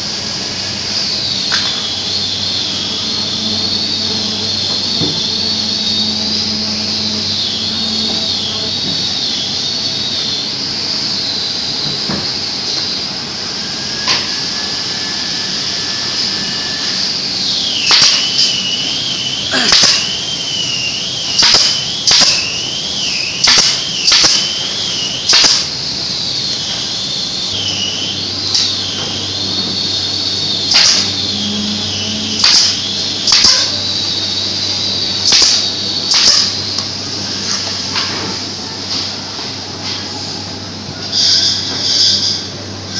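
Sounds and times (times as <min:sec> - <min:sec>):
wavering whine: 0:00.0 - 0:42.9
high air hiss: 0:10.4 - 0:22.5
nail gun shots: 0:17.8 - 0:18.6, 0:19.7 - 0:20.1, 0:21.4 - 0:22.5, 0:23.4 - 0:24.5, 0:25.3 - 0:25.7, 0:30.7 - 0:31.1, 0:32.4 - 0:33.7, 0:35.2 - 0:36.6.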